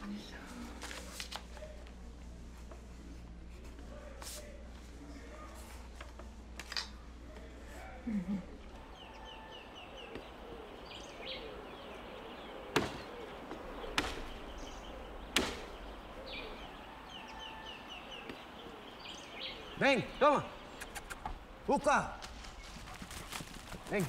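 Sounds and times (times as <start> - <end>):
steady low background noise: 0.0 - 24.0
birds chirping: 7.2 - 24.0.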